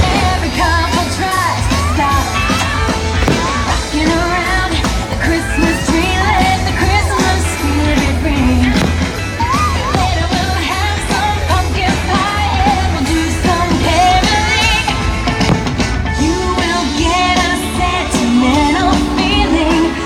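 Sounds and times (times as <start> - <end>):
person singing: 0.0 - 15.0, 16.2 - 20.0
upbeat rock and roll song: 0.0 - 20.0.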